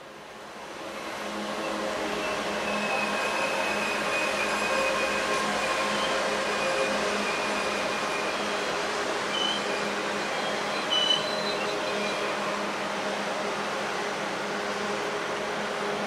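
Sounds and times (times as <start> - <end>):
high-speed train rushing past: 0.1 - 16.0.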